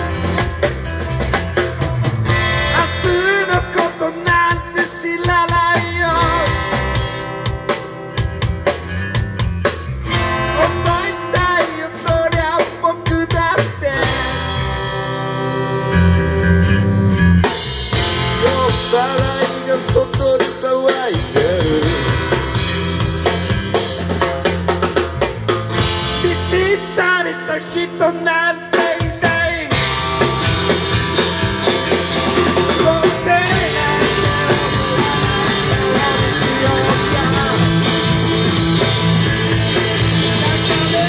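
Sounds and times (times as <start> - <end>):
drum kit: 0.0 - 41.0
electric guitars: 0.0 - 41.0.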